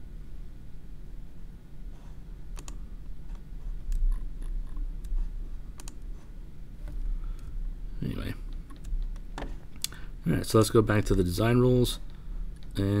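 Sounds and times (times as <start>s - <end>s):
low hum: 0.0s - 13.0s
computer mouse clicks: 2.5s - 6.1s.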